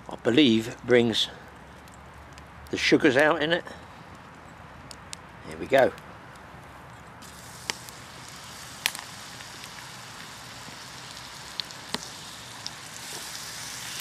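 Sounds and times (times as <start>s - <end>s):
wood fire crackling: 0.0s - 14.0s
butter sizzling in a pan: 7.2s - 14.0s.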